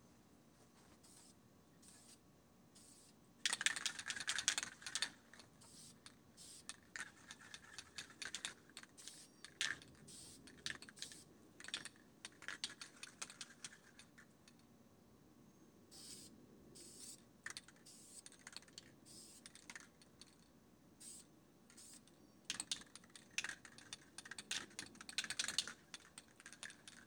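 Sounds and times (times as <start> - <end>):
spray can ball rattling: 2.8 - 14.2, 21.0 - 27.0.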